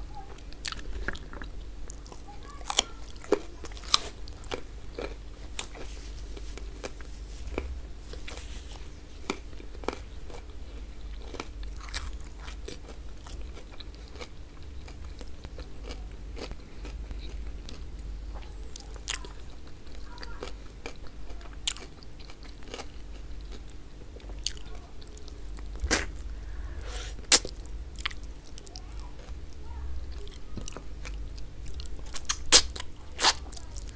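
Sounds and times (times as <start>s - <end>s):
steady low hum: 0.0s - 33.9s
close chewing and biting: 0.4s - 33.9s.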